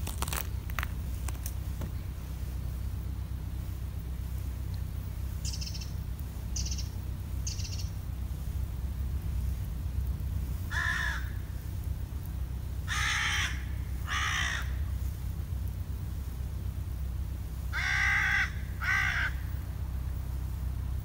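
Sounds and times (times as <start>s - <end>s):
steady low rumble: 0.0s - 21.0s
fainter higher bird calls: 5.4s - 8.0s
crow cawing: 10.7s - 11.4s, 12.9s - 14.8s, 17.7s - 19.5s.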